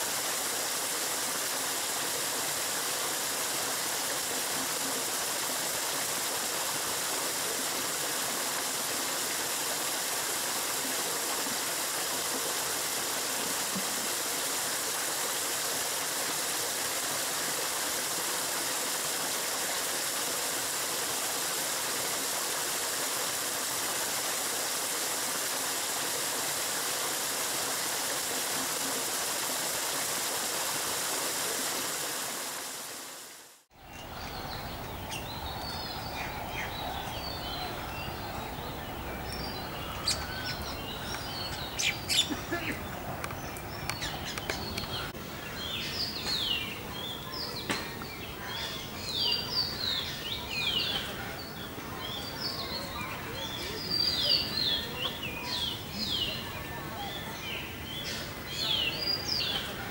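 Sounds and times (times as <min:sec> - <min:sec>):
water gushing from pipe into pond: 0:00.0 - 0:45.2.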